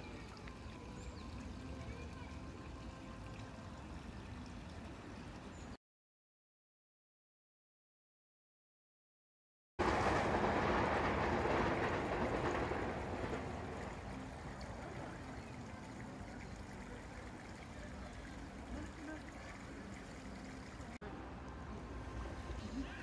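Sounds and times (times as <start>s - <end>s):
rushing noise: 9.8s - 15.3s.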